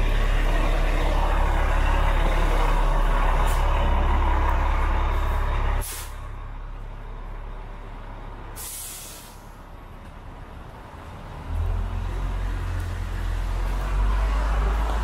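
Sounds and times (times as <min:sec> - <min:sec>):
low traffic rumble: 0:00.0 - 0:15.0
street noise: 0:00.0 - 0:15.0
bus air-brake hiss: 0:05.8 - 0:06.2, 0:08.6 - 0:09.6.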